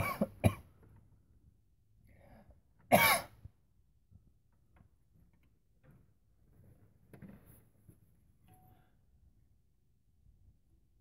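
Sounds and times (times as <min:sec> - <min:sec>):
person coughing: 0:00.0 - 0:00.7, 0:02.9 - 0:03.4.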